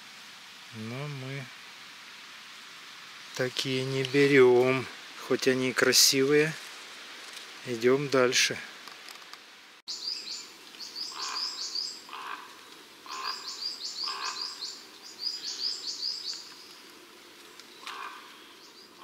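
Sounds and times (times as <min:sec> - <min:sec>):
footsteps in leaf litter: 0:06.0 - 0:07.8
songbird singing: 0:09.9 - 0:19.0.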